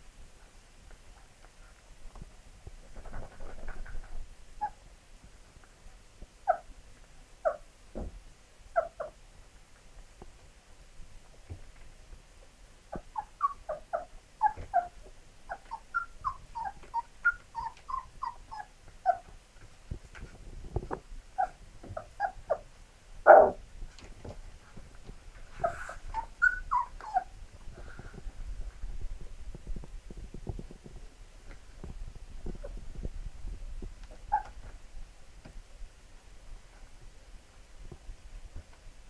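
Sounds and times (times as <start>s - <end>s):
puppy whimpering: 6.5s - 6.7s, 13.0s - 19.3s, 21.4s - 22.6s, 23.3s - 23.6s, 25.6s - 27.4s, 34.2s - 34.6s.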